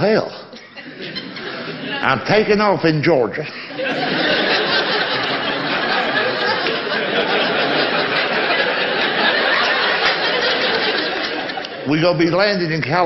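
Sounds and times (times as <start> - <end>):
audience laughing: 0.0 - 12.5
men chuckling: 0.5 - 2.1, 3.4 - 11.8.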